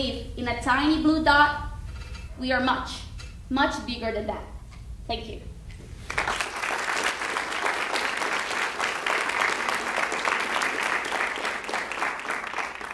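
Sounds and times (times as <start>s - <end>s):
audience applauding: 6.0s - 12.9s.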